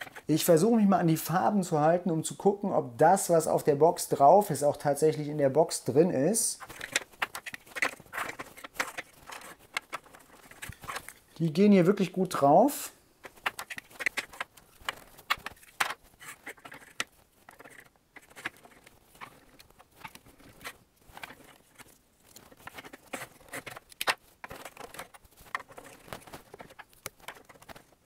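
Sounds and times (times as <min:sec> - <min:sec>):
plastic pieces clicking together: 0:06.6 - 0:11.2, 0:13.2 - 0:28.0.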